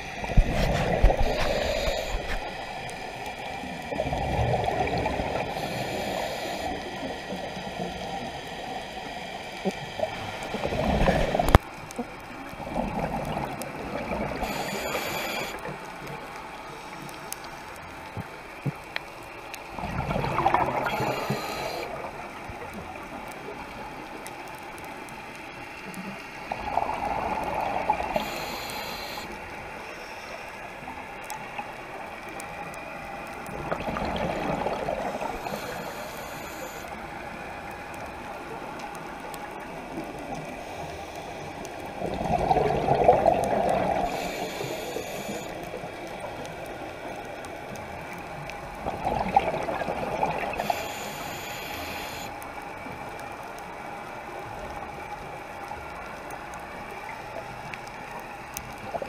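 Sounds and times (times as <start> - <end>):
regulator hiss: 0.0 - 4.0, 5.3 - 11.6, 14.4 - 15.7, 20.8 - 22.3, 27.7 - 31.0, 35.0 - 37.0, 43.8 - 45.7, 50.5 - 52.4
exhaled bubbles rushing underwater: 0.0 - 7.2, 9.8 - 15.8, 19.7 - 23.2, 26.5 - 28.5, 33.4 - 36.4, 41.8 - 44.6, 48.0 - 51.1.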